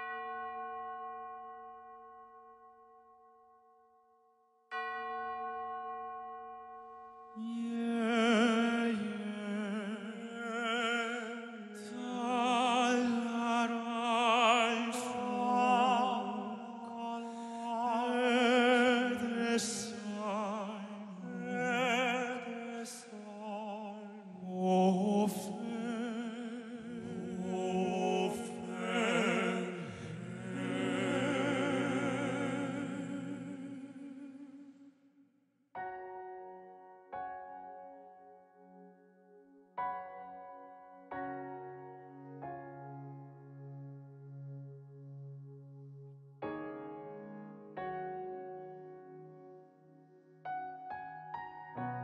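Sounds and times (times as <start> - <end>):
male vocal quartet singing: 7.5 - 34.6
soft instrumental music: 35.8 - 52.0.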